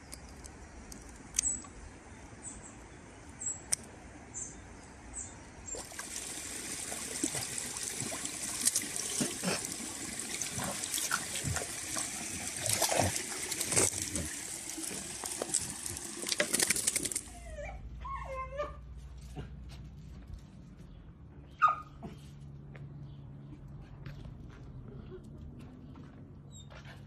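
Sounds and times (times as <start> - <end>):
stream water rushing and splashing: 5.7 - 17.3
dog wading splashes: 5.7 - 17.4.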